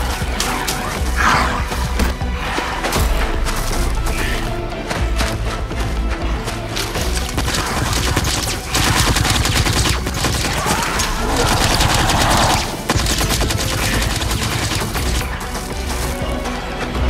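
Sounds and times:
rapid automatic gunfire: 0:07.2 - 0:15.6.

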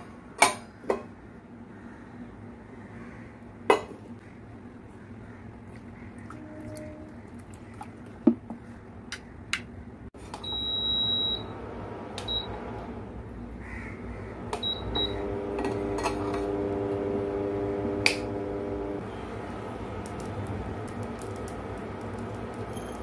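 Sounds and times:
steady electric hum: 0:08.7 - 0:23.0
steel lids and bowls clinking: 0:15.6 - 0:16.6.

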